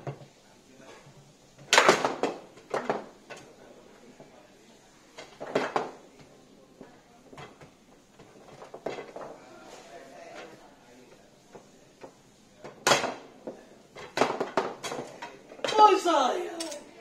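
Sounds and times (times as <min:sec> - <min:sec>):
foosball ball and rods clacking: 0:01.1 - 0:03.6, 0:05.2 - 0:09.4, 0:11.5 - 0:15.9.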